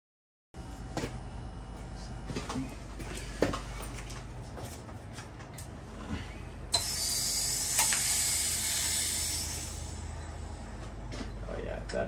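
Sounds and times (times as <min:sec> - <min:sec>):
valve clicks: 0:06.7 - 0:08.4
pressurized water hissing from valve: 0:06.8 - 0:09.9.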